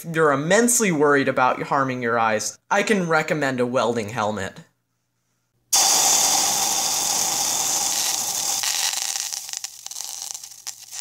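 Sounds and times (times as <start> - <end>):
loud hissing thinning into crackling: 5.7 - 11.0.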